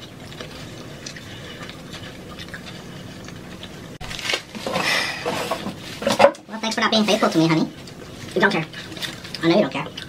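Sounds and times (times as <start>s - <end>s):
chewing and wet mouth noises: 0.0s - 4.0s, 6.6s - 10.0s.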